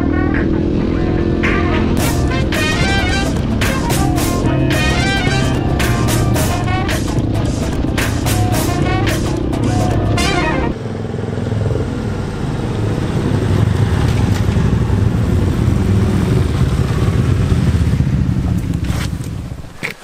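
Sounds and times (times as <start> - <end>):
background music: 0.0 - 10.8
motorcycle engines passing: 0.0 - 20.0.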